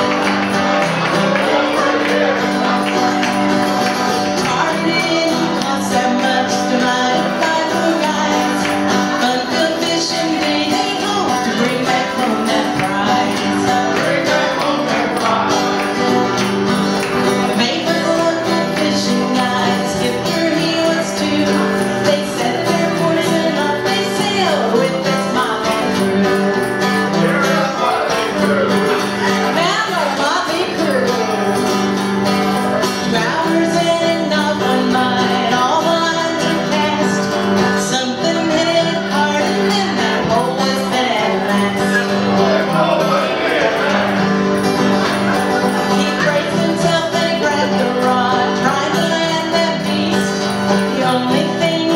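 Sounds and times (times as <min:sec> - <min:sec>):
guitar: 0:00.0 - 0:51.9
jingling percussion: 0:00.0 - 0:51.9
woman singing: 0:04.2 - 0:15.5, 0:17.4 - 0:27.2, 0:29.2 - 0:31.7, 0:32.8 - 0:42.6, 0:45.8 - 0:51.9.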